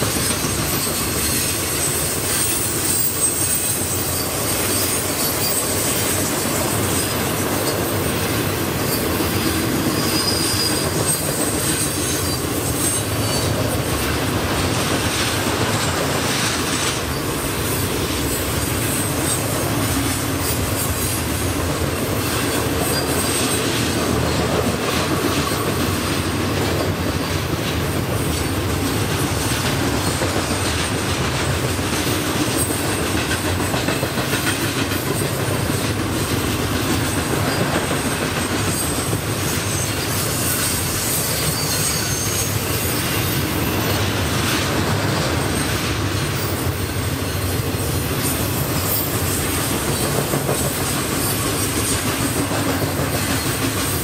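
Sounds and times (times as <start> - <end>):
train wheels rumbling on rail: 0.0 - 54.0
faint wheel squeals: 0.1 - 7.7, 8.8 - 13.9, 37.2 - 44.0.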